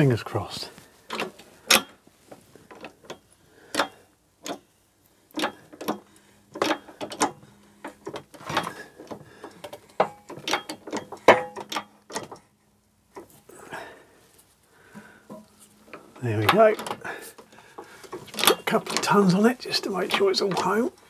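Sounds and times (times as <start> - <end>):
faint steady hum: 0.0 - 21.0
press clicking and knocking on metal: 5.4 - 12.4.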